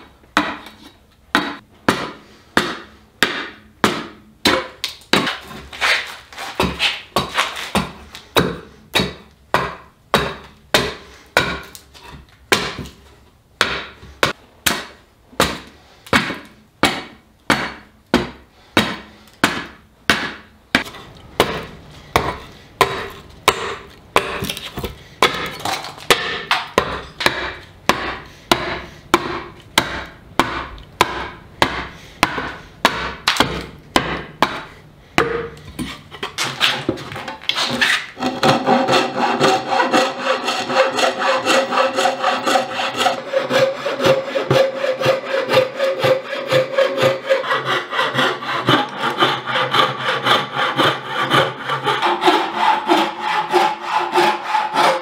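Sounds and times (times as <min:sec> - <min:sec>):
hatchet chopping wood: 0:00.4 - 0:05.6, 0:06.6 - 0:11.8, 0:12.5 - 0:13.0, 0:13.6 - 0:36.0.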